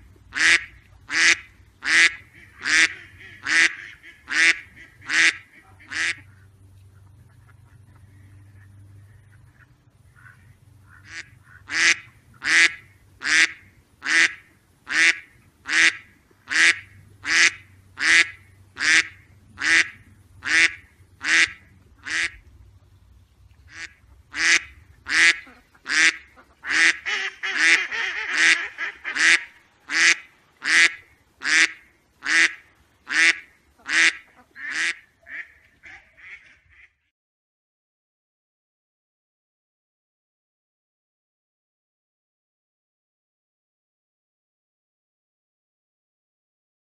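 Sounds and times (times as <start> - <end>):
mallard quacking: 0.0 - 22.5, 23.7 - 37.1
other bird calls: 0.0 - 37.1.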